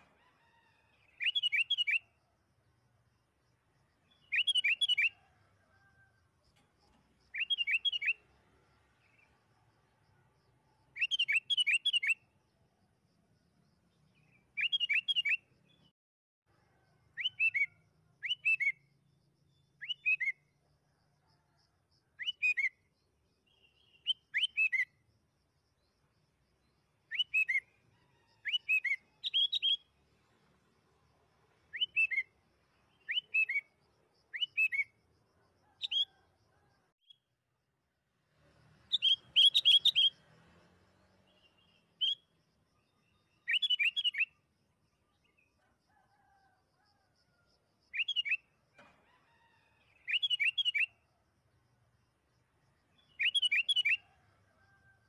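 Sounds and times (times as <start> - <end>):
bird singing whistled notes: 1.1 - 2.1, 4.1 - 5.2, 7.3 - 8.2, 11.0 - 12.2, 14.2 - 15.5, 17.2 - 18.9, 19.6 - 20.4, 22.2 - 22.8, 23.5 - 25.0, 27.1 - 27.7, 28.4 - 29.9, 31.7 - 32.3, 32.9 - 33.7, 34.3 - 35.0, 38.9 - 40.2, 41.3 - 44.4, 47.9 - 48.5, 50.0 - 51.0, 53.0 - 54.1.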